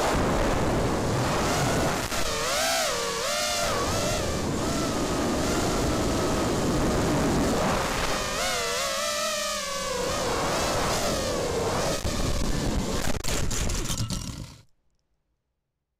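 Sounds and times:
wind rush: 0.0 - 2.4
drone motors whining: 1.4 - 13.2.

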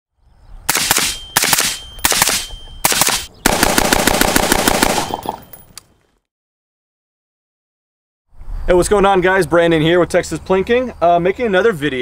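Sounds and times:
rifle fired rapidly: 0.7 - 5.4.

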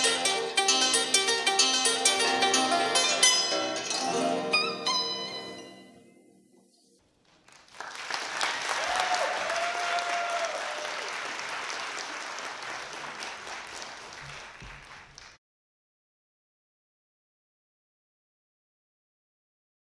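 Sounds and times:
audience applauding: 7.1 - 15.4.

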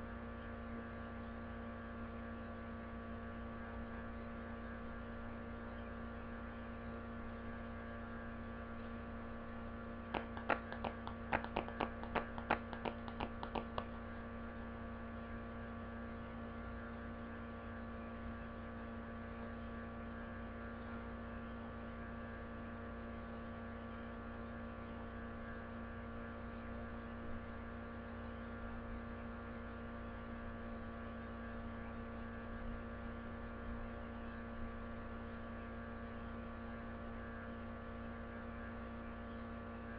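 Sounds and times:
electrical mains hum: 3.3 - 30.6
sharp clicks: 10.2 - 14.0.

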